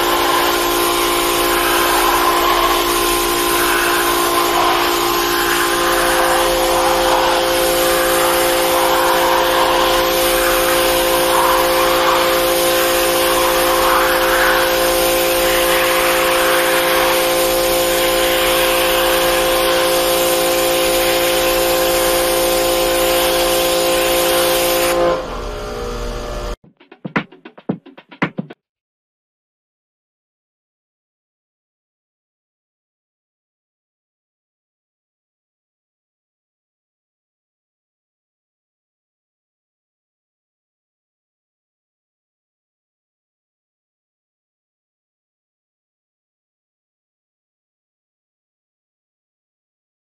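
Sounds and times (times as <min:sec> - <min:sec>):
pressure washer jet hissing: 0:00.0 - 0:24.9.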